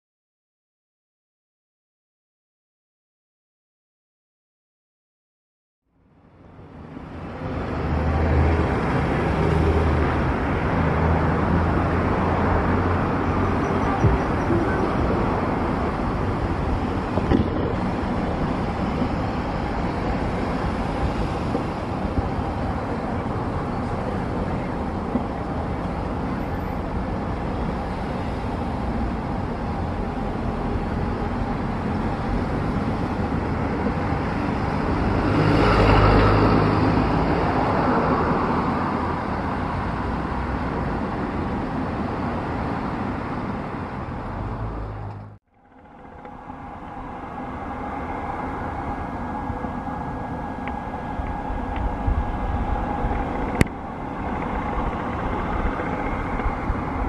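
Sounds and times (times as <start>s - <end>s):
outdoor vehicle noise: 5.8s - 57.0s
vehicle passing: 6.6s - 45.4s.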